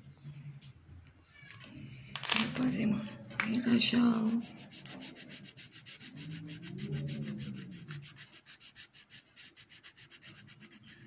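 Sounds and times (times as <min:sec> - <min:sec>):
pencil scratching on paper: 0:04.0 - 0:11.0.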